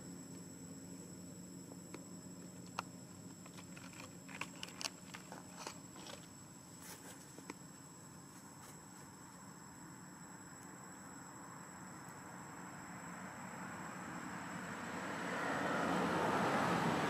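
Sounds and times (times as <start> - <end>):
steady low hum: 0.0 - 17.0
faint clicks and crackles: 1.9 - 7.6.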